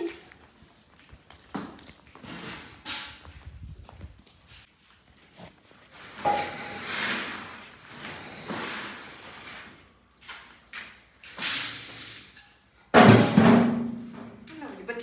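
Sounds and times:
rustling pours and scrapes: 5.2s - 10.6s.

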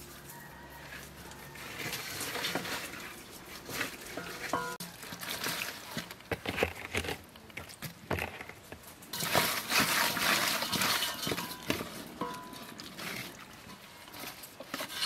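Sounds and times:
wet hands squelching raw chicken: 0.4s - 6.3s.

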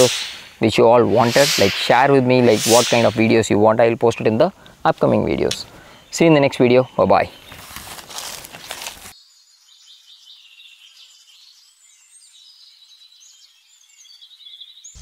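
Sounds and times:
rushing noise: 0.0s - 3.6s.

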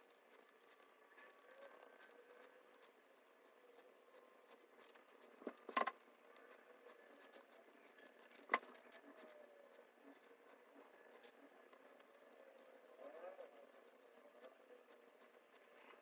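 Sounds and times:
paintbrush scratching on canvas: 0.0s - 16.0s.

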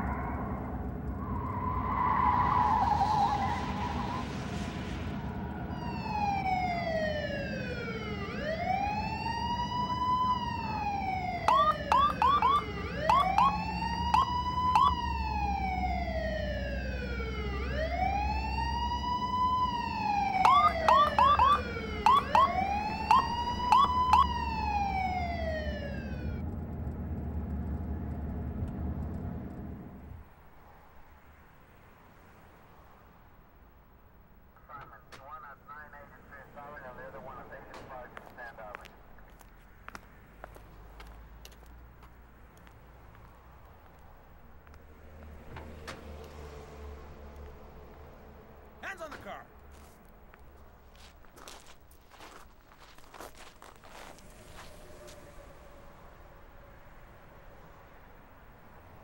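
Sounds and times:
low car rumble: 0.0s - 59.0s
police siren wailing: 1.1s - 4.5s, 5.1s - 26.5s, 53.9s - 57.0s
short sharp siren chirps: 11.1s - 15.2s, 20.0s - 26.4s.

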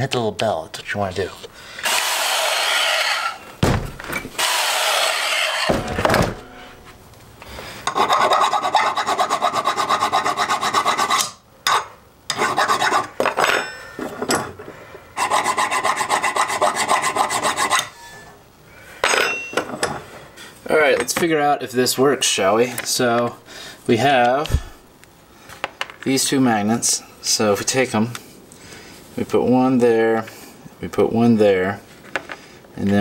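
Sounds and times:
hand file rasping on steel: 7.9s - 11.4s, 12.3s - 13.1s, 15.2s - 18.0s.

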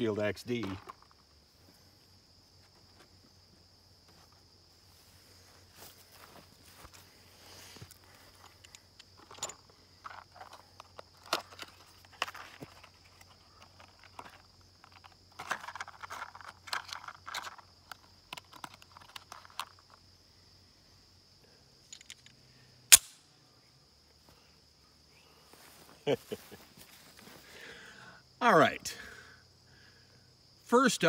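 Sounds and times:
insects singing: 0.0s - 31.0s
handling clicks and rustles: 0.4s - 1.2s, 7.8s - 20.1s, 21.8s - 22.4s.

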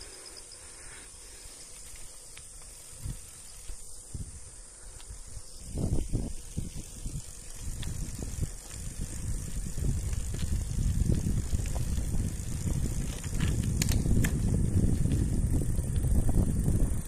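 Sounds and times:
bicycle tyre rumble on asphalt: 0.0s - 17.0s
wind buffeting microphone: 5.2s - 17.0s.

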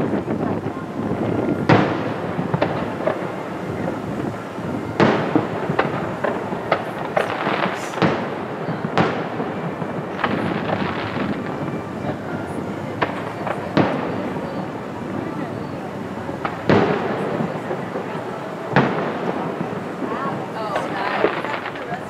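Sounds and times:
fireworks booming: 0.0s - 22.0s
fireworks crackling: 0.0s - 22.0s.

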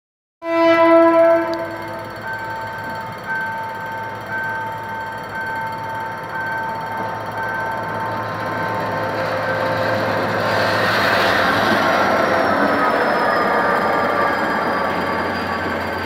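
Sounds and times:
locomotive horn: 0.4s - 2.1s.

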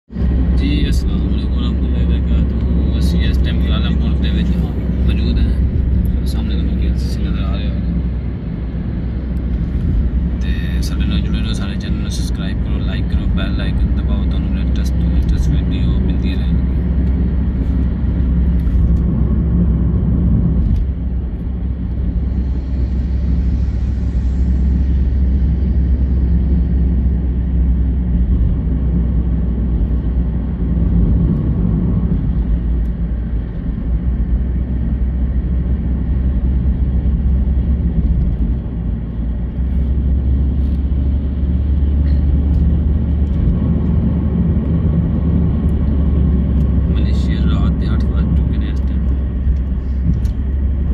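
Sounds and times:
car engine rumble: 0.0s - 50.9s
tyre road noise: 0.0s - 50.9s.

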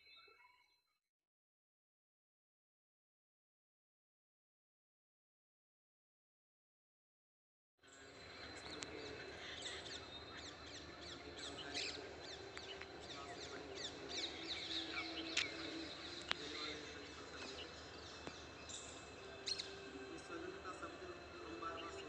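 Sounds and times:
small birds chirping: 7.8s - 22.0s.

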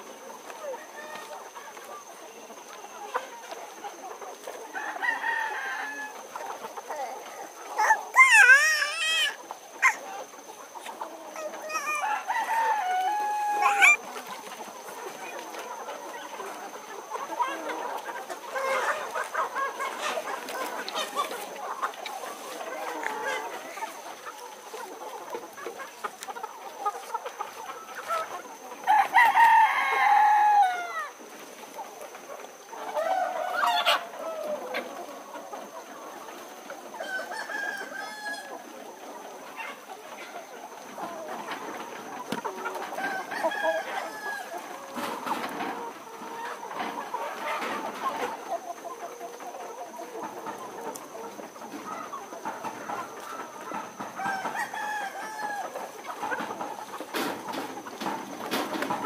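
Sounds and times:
chickens clucking: 0.0s - 59.0s
rooster crowing: 4.8s - 6.2s, 11.7s - 14.0s, 28.9s - 31.2s, 37.0s - 38.5s, 43.0s - 44.7s, 54.2s - 55.8s.

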